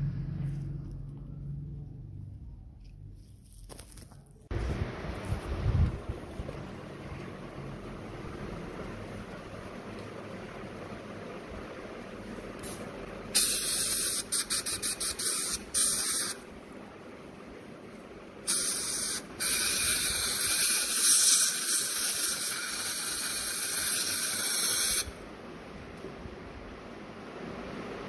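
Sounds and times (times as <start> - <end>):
air-water syringe hissing blasts: 12.6 - 16.4, 18.5 - 25.2.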